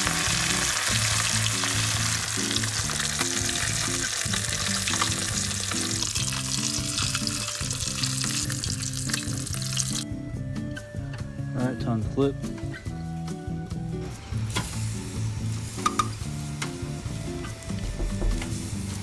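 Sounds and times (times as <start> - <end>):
fish deep-frying in hot oil: 0.0 - 10.0
background music: 0.0 - 19.0.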